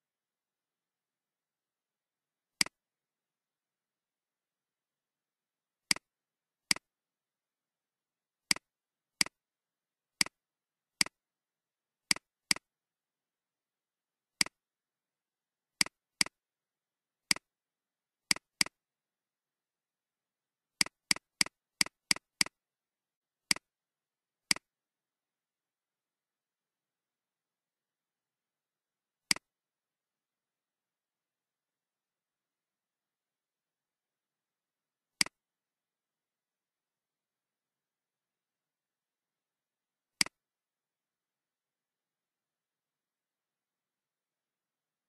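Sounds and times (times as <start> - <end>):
computer mouse clicks: 14.4 - 14.6, 15.8 - 16.4, 18.3 - 18.8, 20.8 - 22.6, 29.3 - 29.5.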